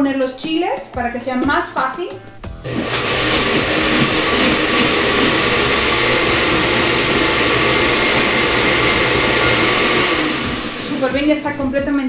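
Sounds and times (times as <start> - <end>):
blender motor running: 2.6 - 12.0.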